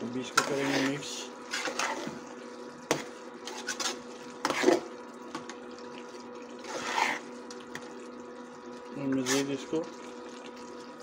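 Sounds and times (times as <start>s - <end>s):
spoon scraping metal pot: 0.4s - 2.1s, 6.6s - 7.3s
metal spoon stirring frying mince: 6.6s - 7.3s.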